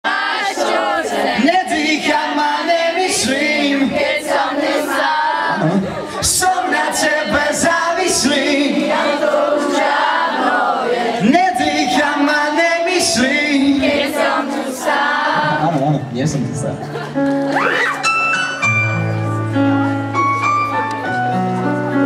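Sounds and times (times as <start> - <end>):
audience singing along: 0.0 - 16.0
crowd noise: 0.0 - 22.0.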